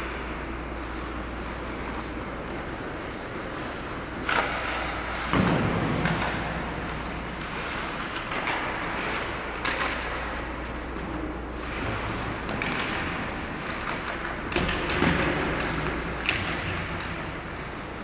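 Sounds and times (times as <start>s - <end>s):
steady low hum: 0.0s - 18.0s
sticks and pucks knocking: 4.2s - 10.9s, 12.4s - 17.4s.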